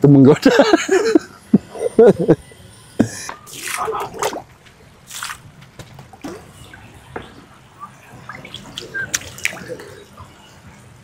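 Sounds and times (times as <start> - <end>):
water splashing and dripping: 3.5 - 7.3, 8.1 - 10.0.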